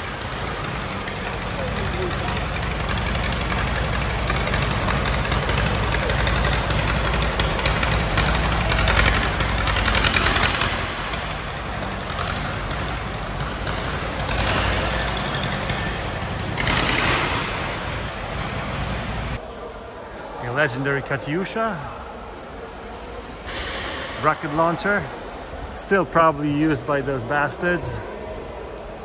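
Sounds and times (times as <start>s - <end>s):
tractor engine chugging: 0.0s - 19.4s.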